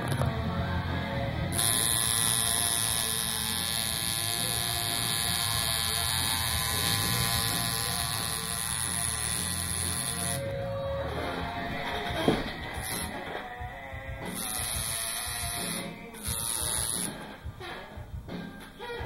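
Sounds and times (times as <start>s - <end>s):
tattoo machine buzzing: 1.5s - 10.5s, 14.3s - 17.2s.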